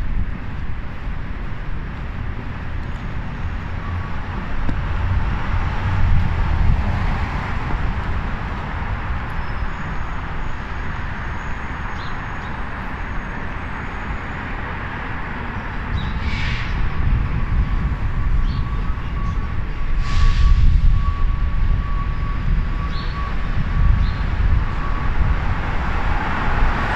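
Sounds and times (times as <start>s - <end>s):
cars driving past: 1.8s - 17.9s, 23.5s - 26.9s.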